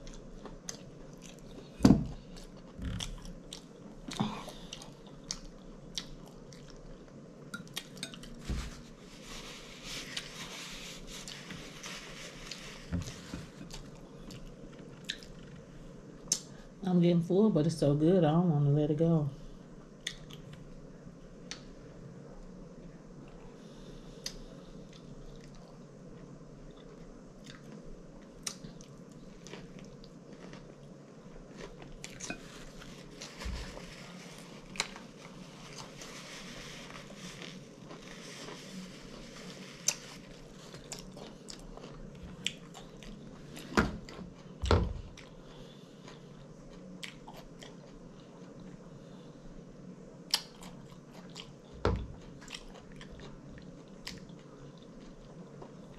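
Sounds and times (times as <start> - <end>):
chewing and lip smacking: 2.3 - 8.4, 13.7 - 15.6, 24.2 - 31.0, 40.7 - 43.3, 46.1 - 48.7, 50.3 - 51.6, 52.2 - 55.9.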